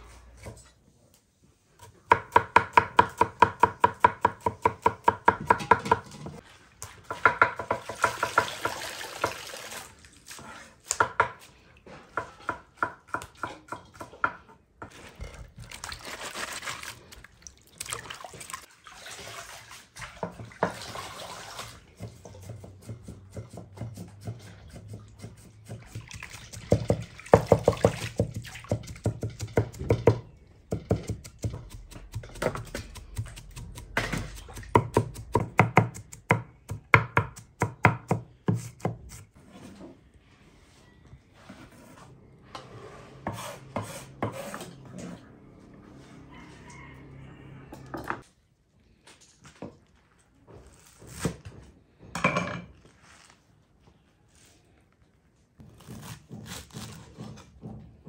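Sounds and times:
hands rinsing herbs in water: 14.9 - 22.1
knife chopping on wooden board: 26.7 - 39.2.

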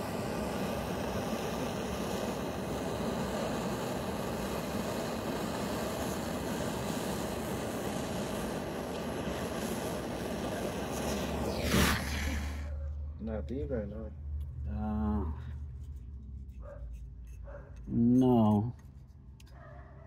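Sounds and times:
torch flame hissing: 0.0 - 12.8.

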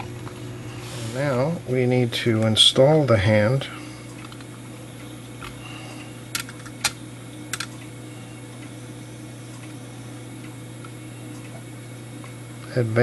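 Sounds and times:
metallic clicks of clock parts: 6.3 - 7.8.

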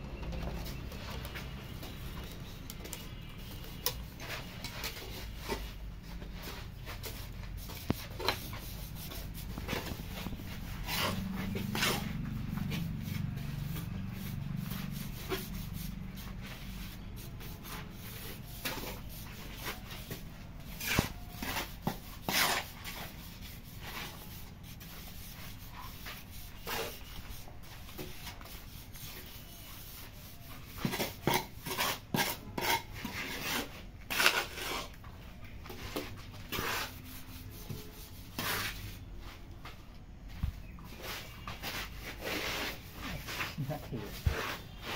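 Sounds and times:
trowel scraping wet mortar: 6.9 - 12.2, 17.0 - 27.5, 28.6 - 35.0, 35.8 - 39.1, 41.0 - 44.9.

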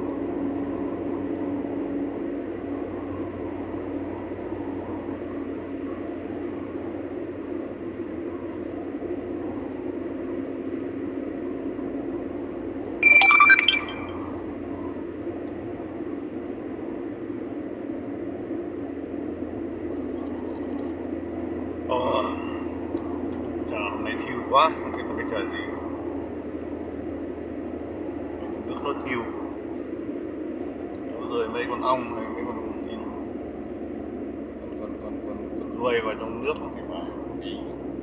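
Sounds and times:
car road and engine noise: 0.0 - 13.0, 14.2 - 38.0
brief high-pitched tone: 13.0 - 14.4.

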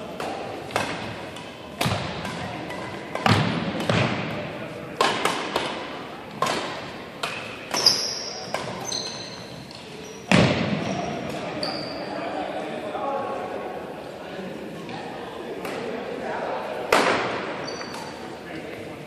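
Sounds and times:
rackets hitting shuttlecock: 0.1 - 4.4, 5.0 - 11.5, 16.9 - 18.2
shoes squeaking on wooden floor: 7.7 - 12.1.

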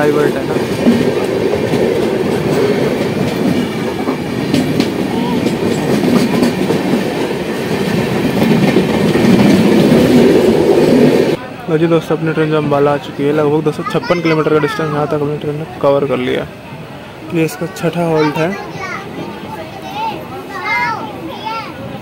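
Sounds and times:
passing train wheels clattering: 0.0 - 11.5.

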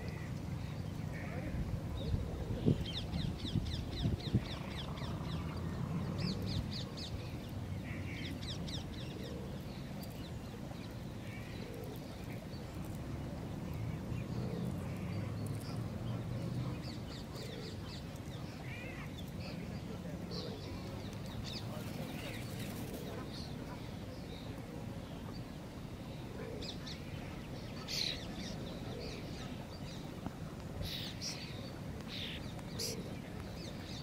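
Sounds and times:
wind rumbling on microphone: 0.0 - 7.8.

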